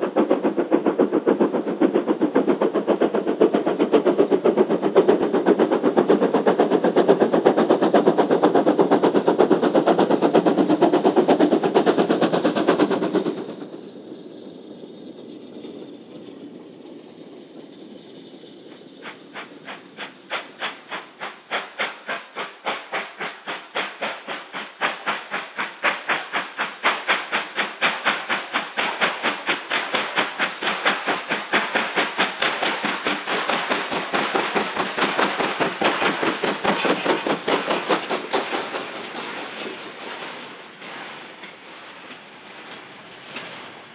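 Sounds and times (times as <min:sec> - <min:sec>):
steam hiss: 0:00.0 - 0:43.9
steam locomotive exhaust beats: 0:00.0 - 0:43.9
wagons rattling past: 0:35.5 - 0:43.9.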